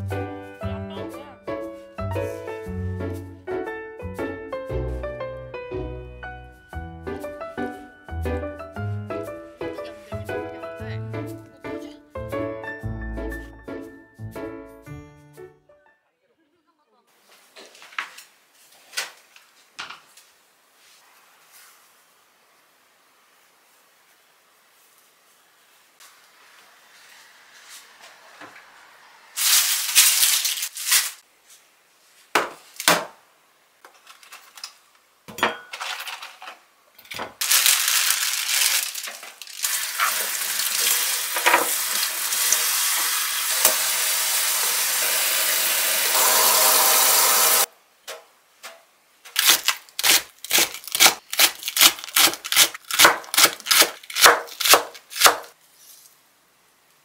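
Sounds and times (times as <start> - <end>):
kitchen tap running: 37.5 - 47.7
knife chopping on cutting board: 49.4 - 55.5.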